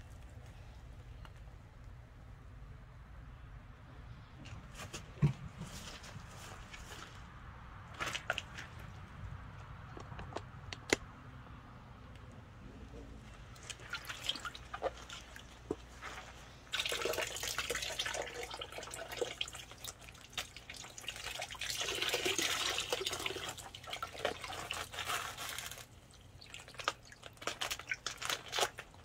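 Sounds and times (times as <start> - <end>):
water splashing and dripping in a tub: 13.4 - 29.0.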